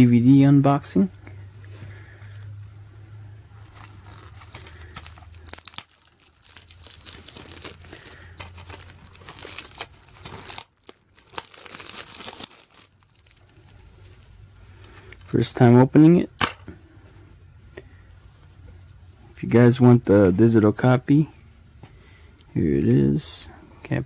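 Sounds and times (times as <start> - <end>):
plastic wrap crinkling: 3.5 - 14.3.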